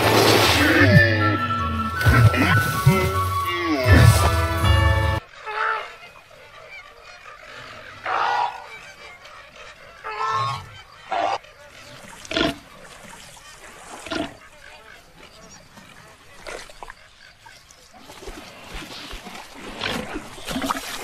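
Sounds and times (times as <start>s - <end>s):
flamingos honking: 0.0s - 6.0s.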